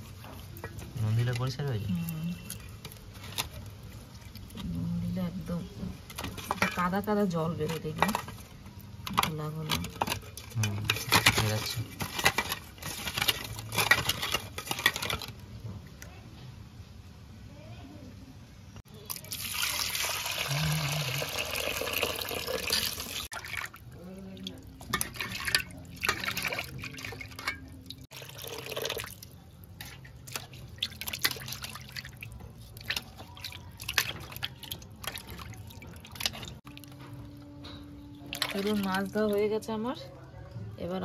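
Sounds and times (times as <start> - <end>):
water poured into metal bowl: 19.1 - 36.8.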